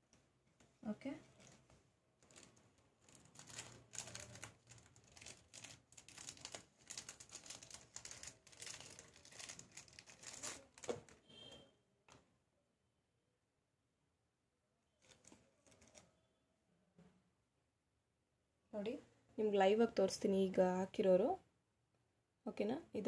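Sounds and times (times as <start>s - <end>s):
crinkling and rustling material: 0.0s - 12.3s, 14.9s - 16.2s.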